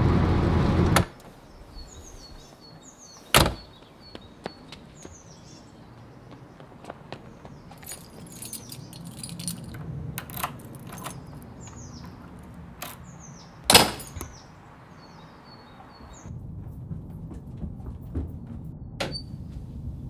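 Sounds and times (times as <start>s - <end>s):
small birds chirping: 1.1s - 16.3s.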